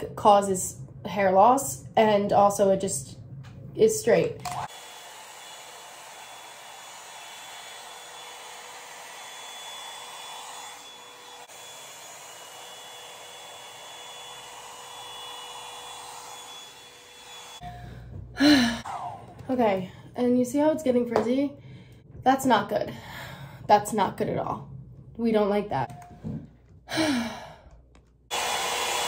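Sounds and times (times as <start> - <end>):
hot-air brush blowing with whine: 4.5 - 19.3, 28.3 - 29.0.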